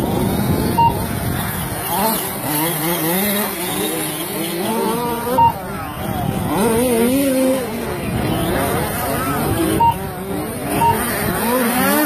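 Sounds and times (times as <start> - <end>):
rc truck motors whining: 0.0 - 12.0
short sharp beep: 0.7 - 1.0, 5.3 - 5.6, 9.7 - 10.0, 10.7 - 11.2.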